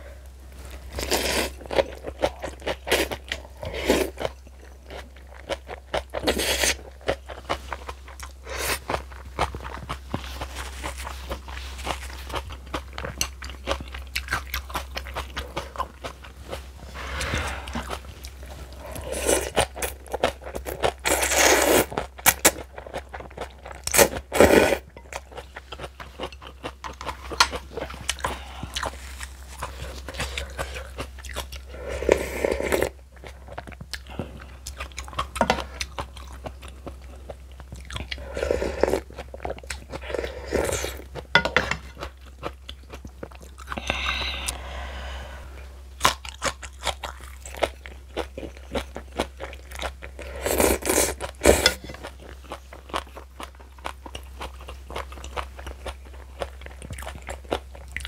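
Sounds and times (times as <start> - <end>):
person chewing and crunching: 0.6 - 44.8, 45.9 - 58.0.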